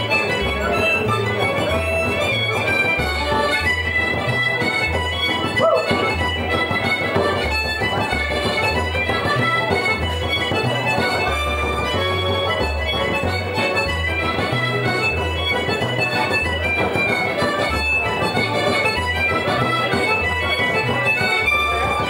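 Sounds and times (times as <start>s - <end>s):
accordion folk tune: 0.0s - 22.0s
other instruments playing: 0.0s - 22.0s.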